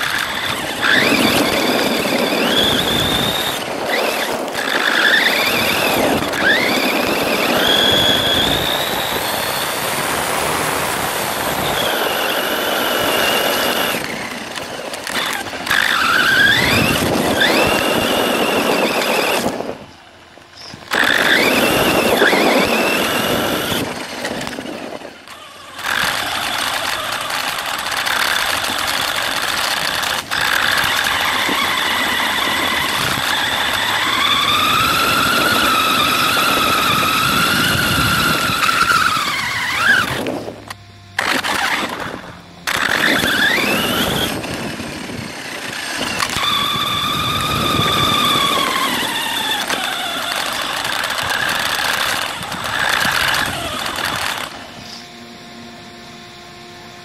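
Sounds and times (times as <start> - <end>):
tyres on gravel: 0.0 - 55.4
toy truck motor whining: 0.0 - 57.0.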